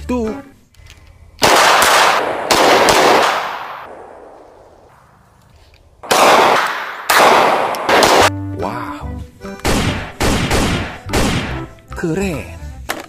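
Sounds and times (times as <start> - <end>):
handgun firing rapid shots: 1.4 - 4.6, 6.0 - 8.3, 9.6 - 11.7.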